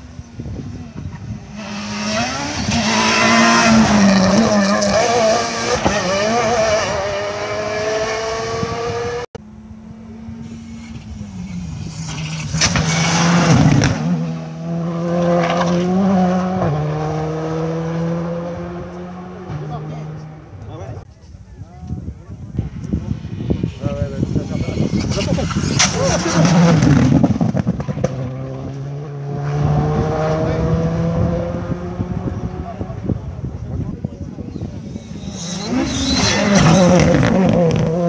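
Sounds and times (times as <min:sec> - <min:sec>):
rally car engine revving: 0:00.0 - 0:21.0, 0:22.8 - 0:38.0.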